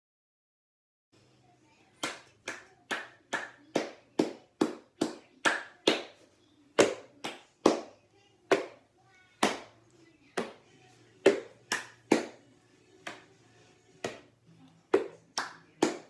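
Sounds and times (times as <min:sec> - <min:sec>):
hand claps in a steady beat: 0:02.0 - 0:06.2, 0:06.8 - 0:07.9, 0:08.5 - 0:08.8, 0:09.4 - 0:09.7, 0:11.2 - 0:12.4, 0:13.0 - 0:13.3, 0:14.0 - 0:14.3, 0:14.9 - 0:16.0.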